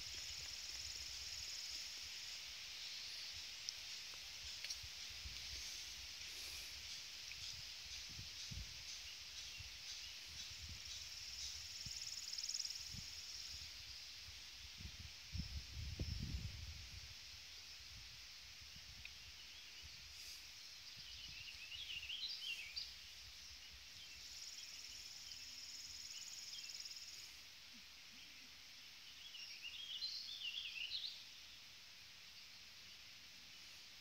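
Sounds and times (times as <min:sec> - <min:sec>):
buzzy insect trill: 0:00.0 - 0:14.1
faint hiss: 0:00.0 - 0:34.0.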